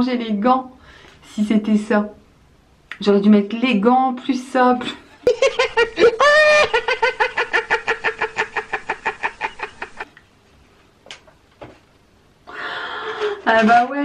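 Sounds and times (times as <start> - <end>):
man cackling laugh: 5.2 - 10.1.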